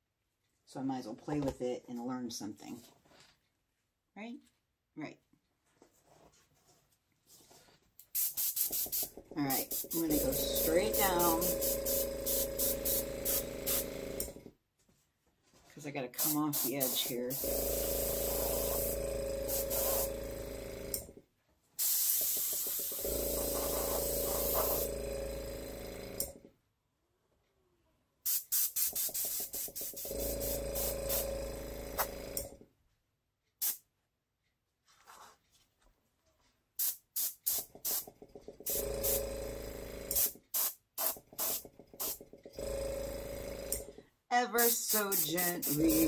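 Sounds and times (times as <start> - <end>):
airbrush blowing air: 8.2 - 14.3, 16.2 - 21.0, 21.8 - 26.2, 28.3 - 32.4, 38.6 - 43.8, 44.6 - 46.0.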